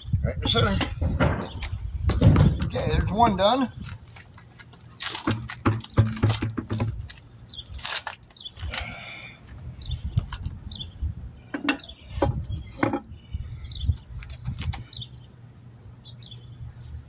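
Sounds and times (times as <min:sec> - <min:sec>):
tire knocking and clunking: 0:00.3 - 0:07.3, 0:11.5 - 0:13.3.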